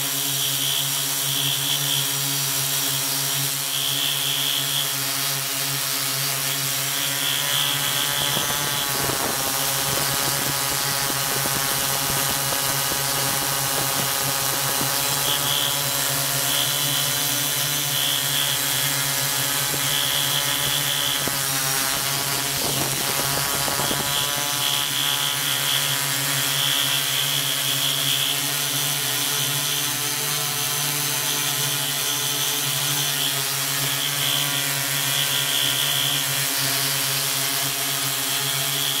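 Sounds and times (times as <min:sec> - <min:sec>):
drone motors humming: 0:00.0 - 0:39.0.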